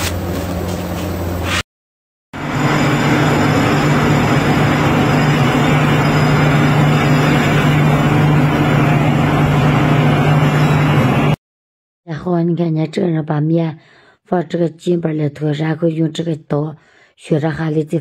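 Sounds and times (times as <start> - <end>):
steady low hum: 2.4 - 11.4.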